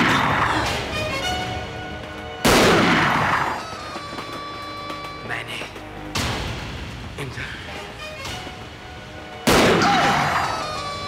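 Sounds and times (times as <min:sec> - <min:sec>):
film music with held notes: 0:00.0 - 0:11.0
loud gunshot: 0:02.4 - 0:03.4, 0:09.5 - 0:10.3.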